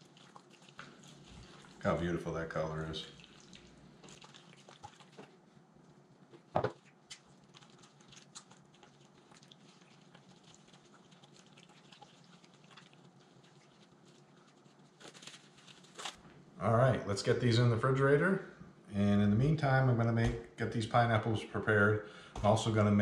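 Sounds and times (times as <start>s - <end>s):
squishing of meat in marinade: 0.0s - 16.2s.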